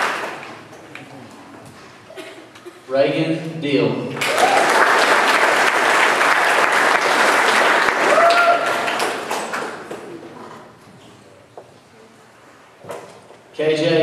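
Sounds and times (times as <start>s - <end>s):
audience applauding: 0.0s - 0.7s, 4.2s - 10.2s
person cheering: 8.0s - 8.9s.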